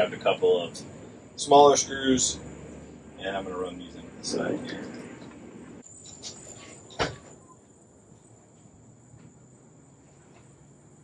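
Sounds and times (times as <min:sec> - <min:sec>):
crickets chirring: 0:05.8 - 0:11.0.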